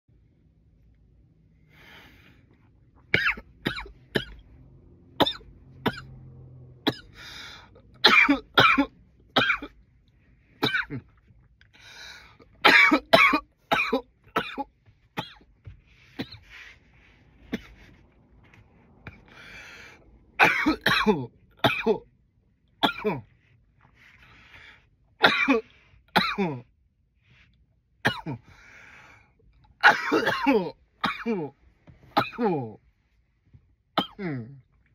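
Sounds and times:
man coughing loudly: 0:03.1 - 0:04.4, 0:05.2 - 0:06.2, 0:06.9 - 0:07.1, 0:08.0 - 0:09.8, 0:10.6 - 0:11.2, 0:12.6 - 0:15.4, 0:20.4 - 0:22.1, 0:22.8 - 0:23.3, 0:25.2 - 0:26.7, 0:28.0 - 0:28.4, 0:29.8 - 0:32.8, 0:34.0 - 0:34.6
soft breaths drawn in: 0:15.8 - 0:20.3.

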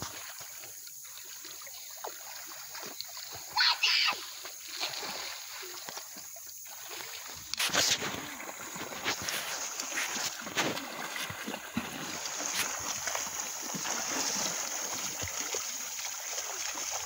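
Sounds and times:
water splashing and sloshing: 0:00.0 - 0:17.0
child's high-pitched cry: 0:03.6 - 0:04.3.

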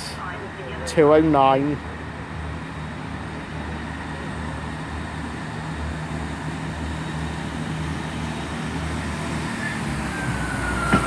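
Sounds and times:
diesel train engine rumbling: 0:00.0 - 0:11.0.

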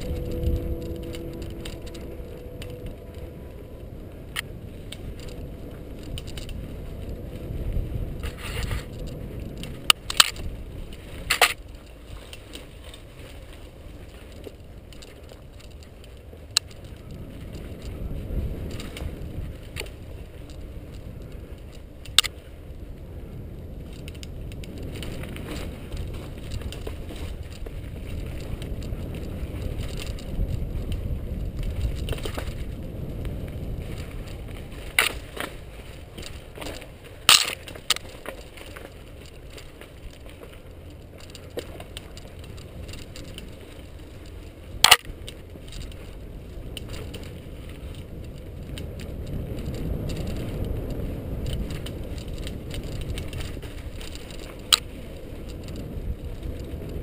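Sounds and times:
bike clacking and rattling: 0:00.0 - 0:57.0
bike tyres rumbling on dirt: 0:00.0 - 0:57.0.

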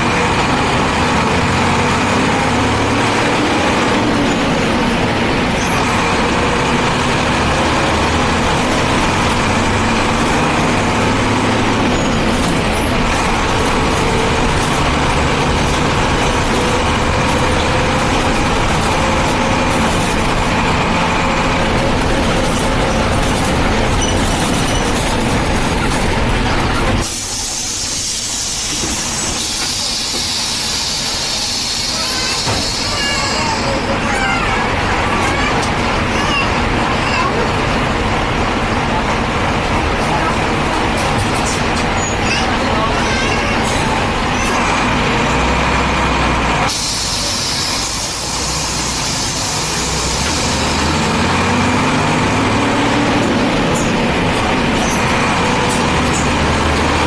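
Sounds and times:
diesel bus engine rumbling: 0:00.0 - 0:57.0
hiss: 0:27.0 - 0:33.0, 0:46.7 - 0:50.9.

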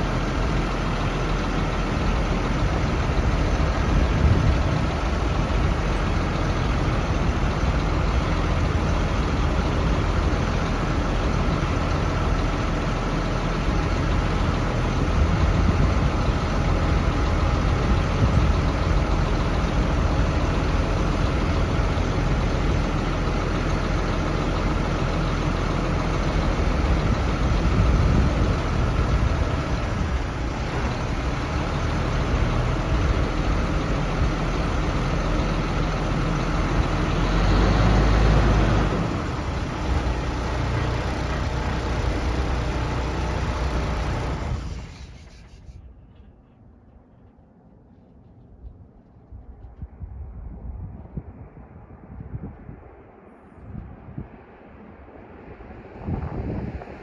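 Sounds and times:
diesel truck engine idling: 0:00.0 - 0:48.8.

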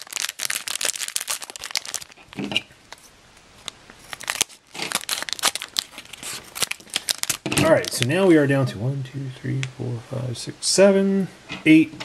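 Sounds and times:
plastic foil pack crinkling: 0:00.0 - 0:08.2.

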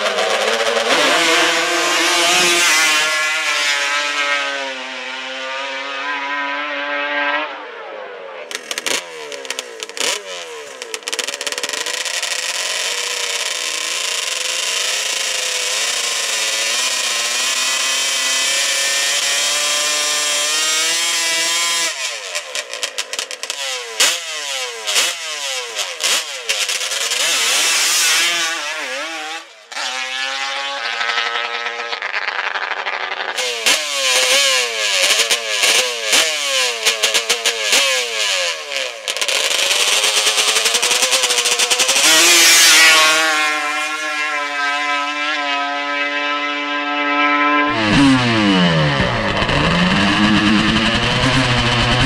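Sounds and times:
atv engine revving: 0:00.0 - 0:07.6, 0:08.5 - 0:52.0
tire spinning: 0:08.5 - 0:24.1, 0:24.8 - 0:44.5, 0:47.7 - 0:52.0
engine throttle blips: 0:43.6 - 0:52.0.

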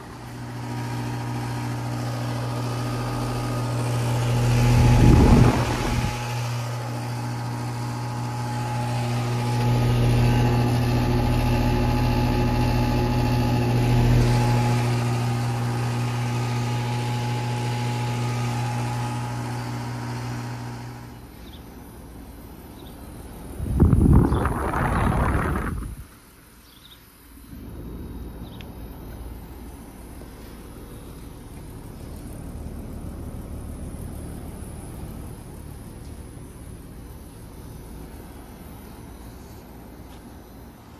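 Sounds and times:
air conditioner unit humming: 0:00.0 - 0:40.9
rush of air: 0:23.6 - 0:26.1.

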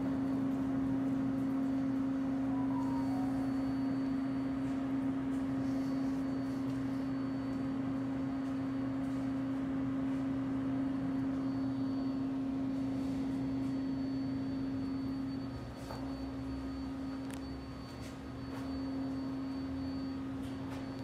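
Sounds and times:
subway train humming: 0:00.0 - 0:13.8.

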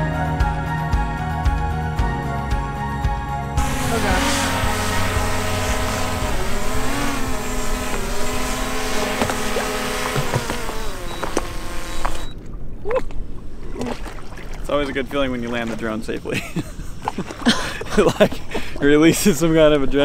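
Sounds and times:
drone propellers whining: 0:03.6 - 0:12.4.

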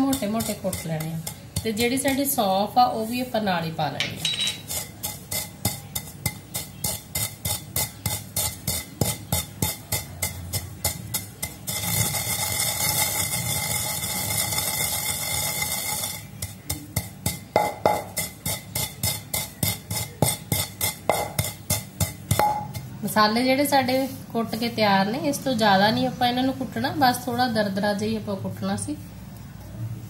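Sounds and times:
pestle pounding in clay mortar: 0:00.0 - 0:02.4, 0:04.1 - 0:23.1
pestle rubbing in mortar: 0:00.0 - 0:03.3, 0:04.5 - 0:23.1.

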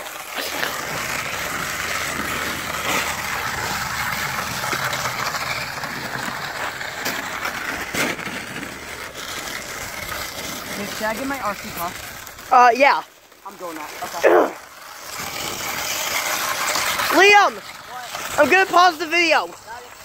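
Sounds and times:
wheels scraping over ice: 0:00.0 - 0:20.0.

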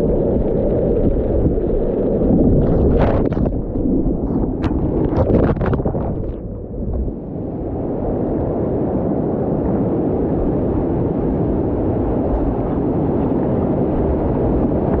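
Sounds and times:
muffled wind rumble: 0:00.0 - 0:15.0
surf: 0:00.0 - 0:15.0.

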